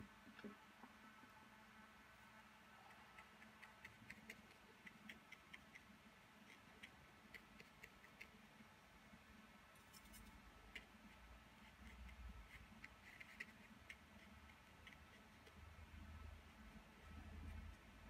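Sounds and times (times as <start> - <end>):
low room hum: 0.0 - 18.0
brush dabbing paint on paper: 2.8 - 8.6, 9.8 - 18.0.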